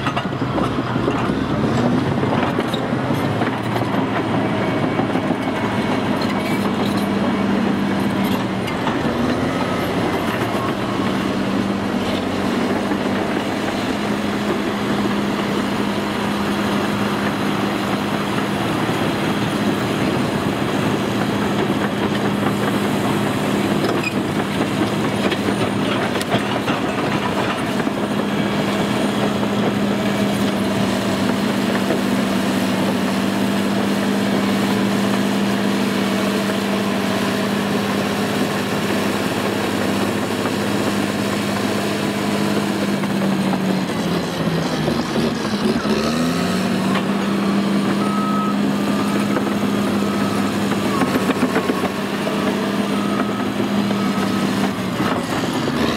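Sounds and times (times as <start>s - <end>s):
steel tracks clanking: 0.0s - 32.9s
bulldozer diesel engine running: 0.0s - 55.9s.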